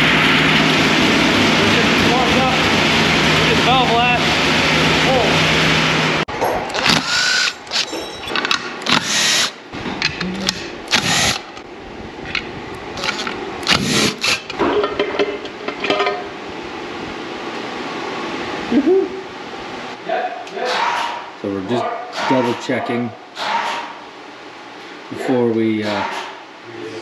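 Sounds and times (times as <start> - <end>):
cordless drill running: 6.8 - 7.8, 10.9 - 11.5.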